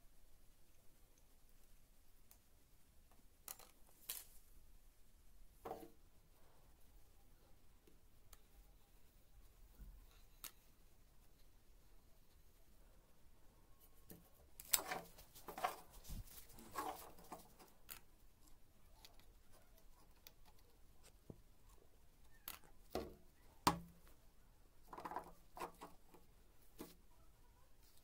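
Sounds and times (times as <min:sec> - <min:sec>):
knocks and scrapes on wooden bench: 0:14.8 - 0:17.6.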